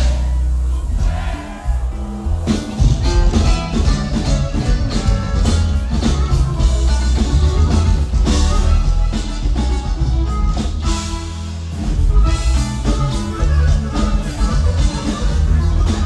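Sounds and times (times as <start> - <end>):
accordion: 0.0 - 16.0
bajo sexto guitar: 0.0 - 16.0
drums: 0.0 - 16.0
electric bass: 0.0 - 16.0.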